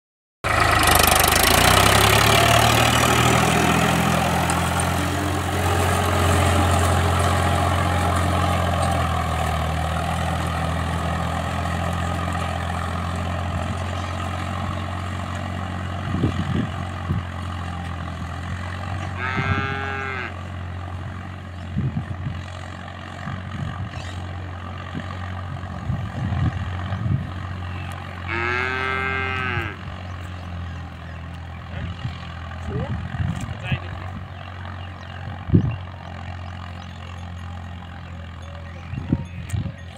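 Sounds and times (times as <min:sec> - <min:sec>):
diesel tractor engine running: 0:00.4 - 0:39.9
cattle mooing: 0:18.9 - 0:20.5, 0:28.2 - 0:29.9.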